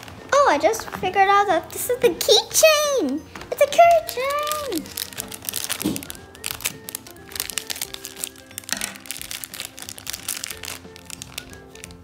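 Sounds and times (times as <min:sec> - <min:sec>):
background music with held notes: 0:00.0 - 0:12.0
plastic wrapper crinkling: 0:00.0 - 0:12.0
scissors cutting plastic: 0:03.4 - 0:12.0.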